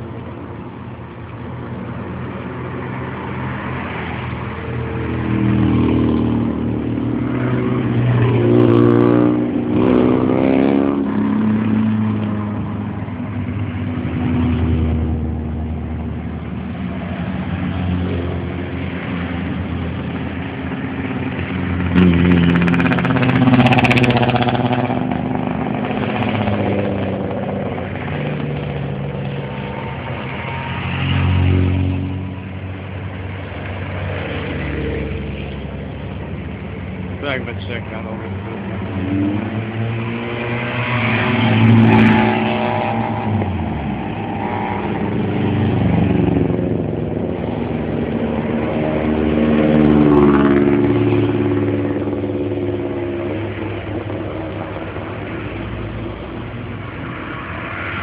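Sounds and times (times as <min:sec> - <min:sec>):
rally car engines revving: 0:16.5 - 0:58.0.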